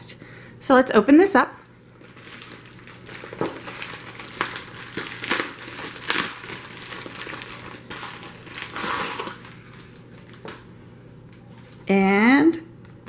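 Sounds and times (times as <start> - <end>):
plastic mailer crinkling: 2.0 - 10.7.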